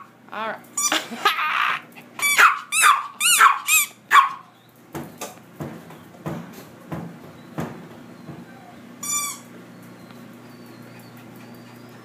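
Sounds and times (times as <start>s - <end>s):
small dog yapping: 2.2s - 4.5s.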